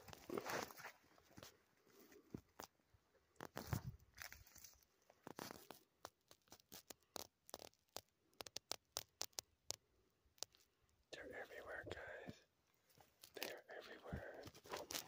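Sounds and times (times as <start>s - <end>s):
twigs crackling underfoot: 0.0s - 9.5s, 12.9s - 15.0s.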